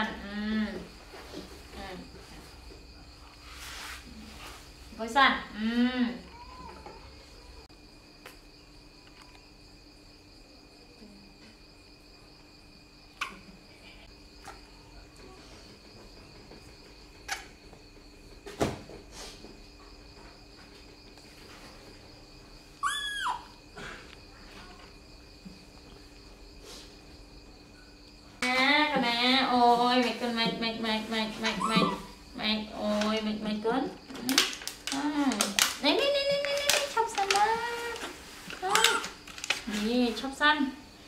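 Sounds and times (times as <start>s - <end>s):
baby monkey squeal: 22.8s - 23.6s, 31.6s - 32.2s.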